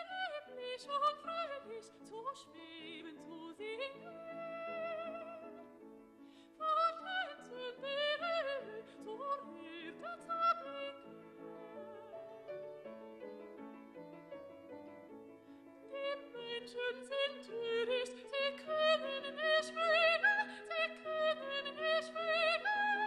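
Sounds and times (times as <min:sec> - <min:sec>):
operatic voice singing with vibrato: 0:16.0 - 0:23.0.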